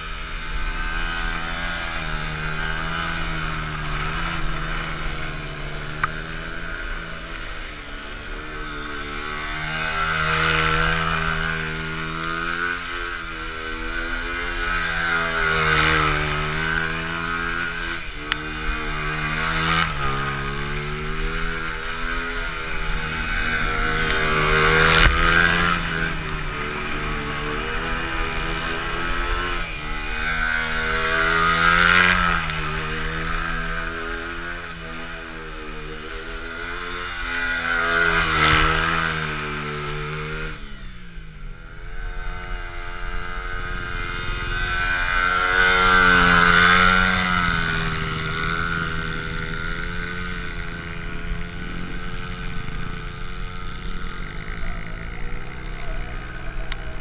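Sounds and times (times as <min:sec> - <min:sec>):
dirt bike engines revving: 0:00.0 - 0:57.0.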